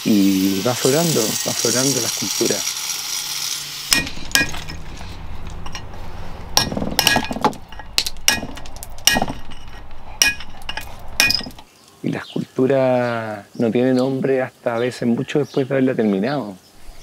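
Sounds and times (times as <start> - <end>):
hammer striking chisel into marble: 6.6 - 9.5.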